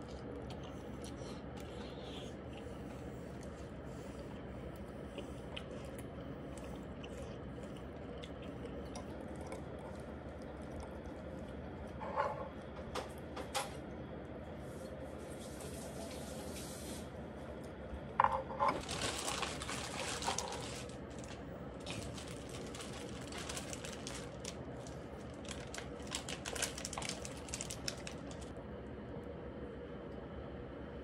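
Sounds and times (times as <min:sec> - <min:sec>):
faint steady hum: 0:00.0 - 0:31.0
scraping and rustling: 0:18.3 - 0:28.5.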